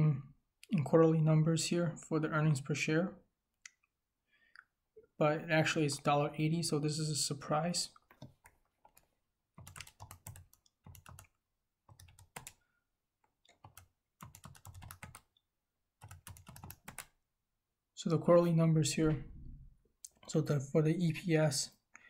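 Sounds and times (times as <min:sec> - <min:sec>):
typing on computer keyboard: 0:08.1 - 0:12.6, 0:13.5 - 0:15.3, 0:16.0 - 0:17.2.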